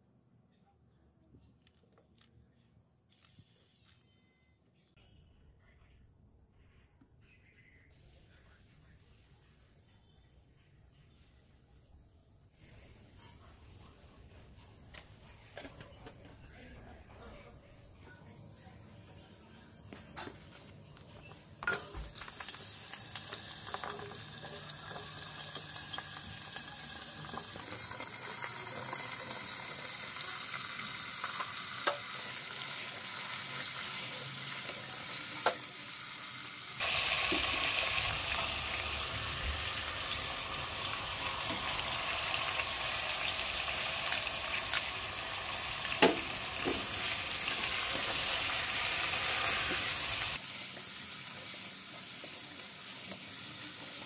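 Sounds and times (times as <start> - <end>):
vegetables sizzling in oil: 21.8 - 54.0.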